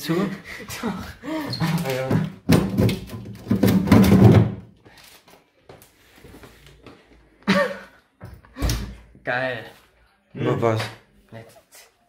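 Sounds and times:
plastic drawer rattling thunks: 2.1 - 4.6.

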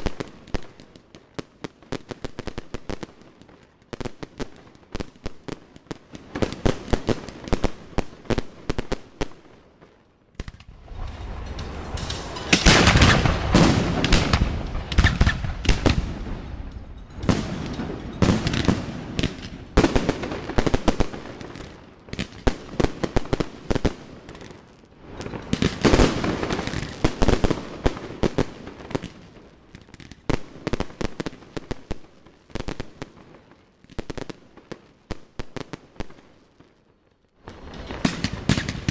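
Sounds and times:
fireworks crackling: 0.0 - 36.8, 37.4 - 38.9
fireworks bangs: 3.9 - 29.3, 37.4 - 38.9.

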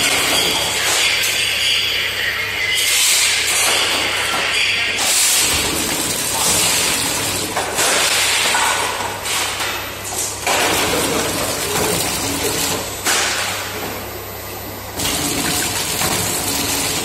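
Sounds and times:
machine low hum: 4.3 - 7.8, 9.0 - 17.0.

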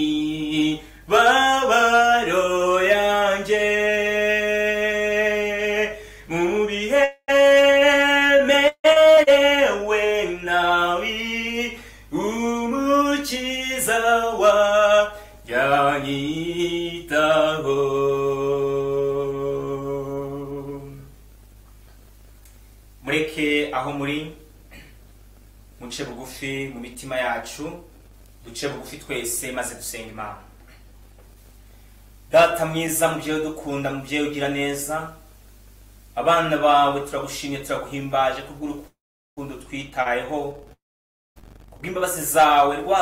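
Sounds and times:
man singing a hymn: 0.0 - 21.1, 41.8 - 43.0.

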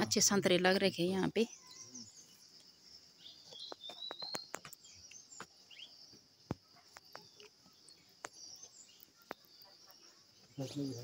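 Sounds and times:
birds chirping: 0.0 - 11.0
high insect drone: 0.0 - 11.0.

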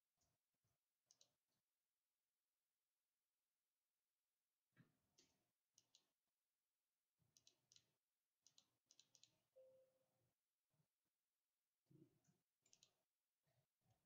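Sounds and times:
keyboard typing: 8.5 - 9.4.

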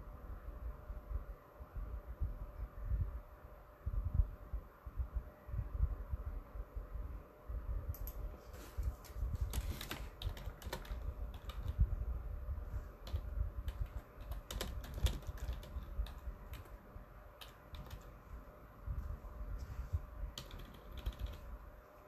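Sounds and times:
keyboard key clicks: 9.5 - 11.8, 13.0 - 16.8, 20.4 - 21.5.

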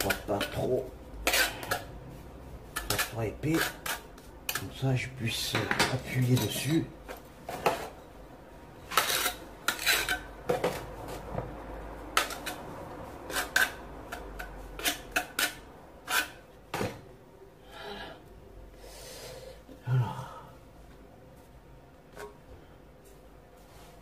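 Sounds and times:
metal tool scraping on tile: 1.2 - 1.9, 2.8 - 4.7, 8.9 - 10.3, 13.3 - 16.4.

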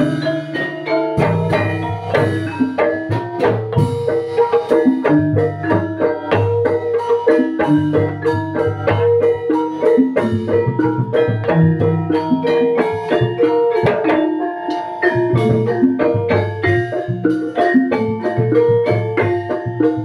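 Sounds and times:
drum strokes: 0.0 - 20.0
metallophones and gong-chimes ringing: 0.0 - 20.0.

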